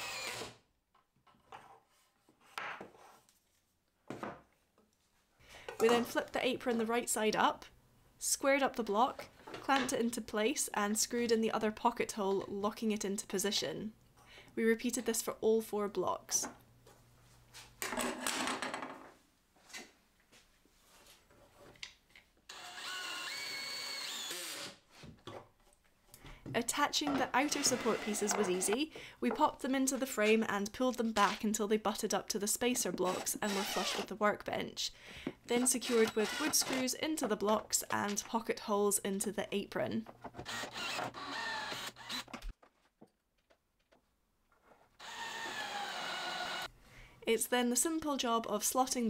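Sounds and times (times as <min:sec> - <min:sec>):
drill motor whining: 0:00.0 - 0:00.5, 0:22.5 - 0:24.7, 0:27.5 - 0:28.8, 0:33.1 - 0:34.0, 0:35.8 - 0:36.8, 0:40.4 - 0:42.4, 0:45.0 - 0:46.7.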